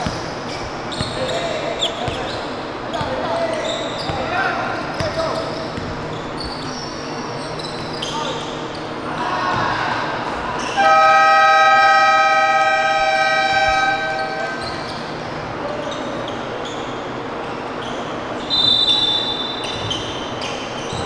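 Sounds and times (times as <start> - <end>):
scoreboard buzzer: 10.8 - 14.6
referee's whistle: 18.4 - 19.8.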